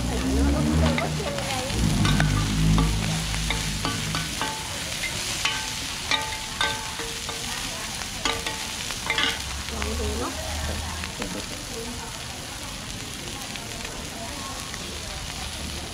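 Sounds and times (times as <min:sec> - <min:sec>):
food sizzling in oil: 0:00.0 - 0:15.9
metal spatulas scraping a pan: 0:00.6 - 0:09.6.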